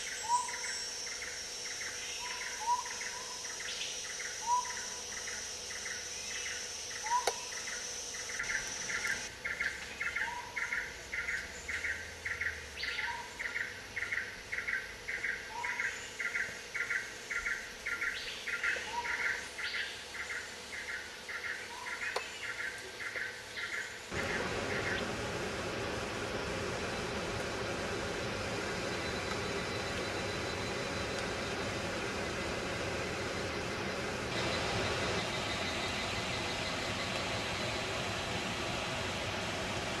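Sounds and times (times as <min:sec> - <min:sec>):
high insect whine: 0:00.0 - 0:09.4, 0:24.0 - 0:39.8
pulsing insect chirp: 0:00.0 - 0:09.6, 0:24.0 - 0:39.4.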